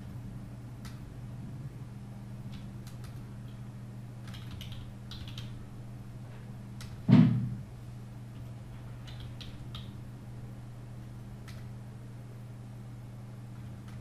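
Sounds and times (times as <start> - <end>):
steady low hum: 0.0 - 14.0
loud thump: 7.1 - 7.6.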